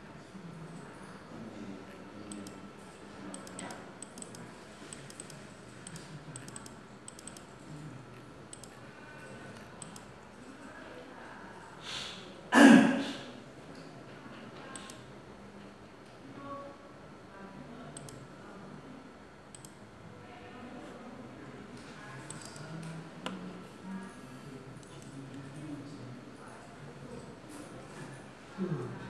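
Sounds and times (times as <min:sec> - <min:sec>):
faint mouse clicks: 0:03.3 - 0:10.1, 0:18.0 - 0:18.2, 0:21.8 - 0:23.4.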